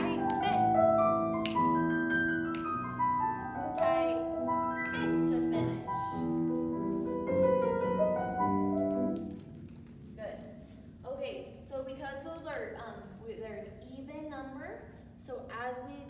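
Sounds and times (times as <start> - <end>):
solo piano music: 0.0 - 9.4.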